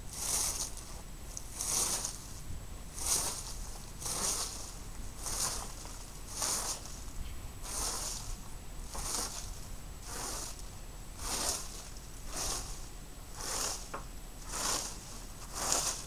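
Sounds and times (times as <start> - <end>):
rake dragged through leaves: 0.0 - 16.0.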